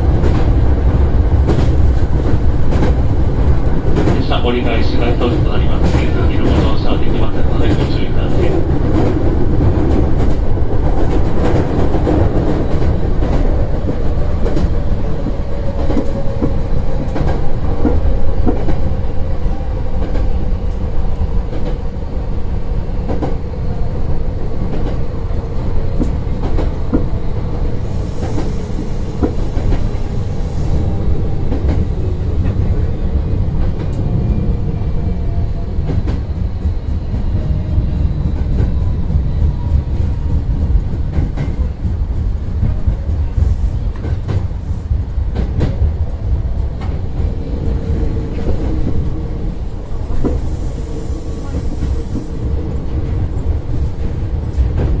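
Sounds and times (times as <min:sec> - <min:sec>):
electric train rumbling on rails: 0:00.0 - 0:55.0.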